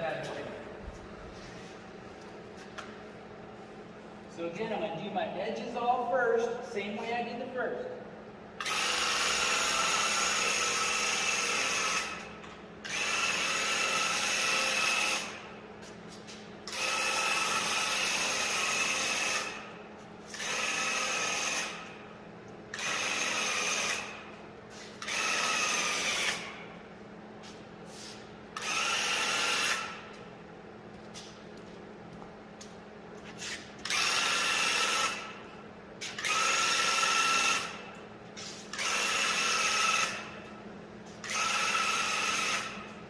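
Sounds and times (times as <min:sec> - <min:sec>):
paint sprayer pump whining: 0:08.6 - 0:22.1, 0:22.7 - 0:26.8, 0:27.4 - 0:30.3, 0:33.2 - 0:35.4, 0:36.0 - 0:43.0.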